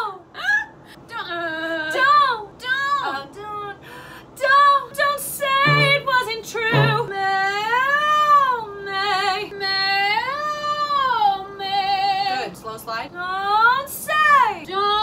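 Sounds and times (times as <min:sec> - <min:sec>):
woman singing unaccompanied: 0:05.6 - 0:07.2.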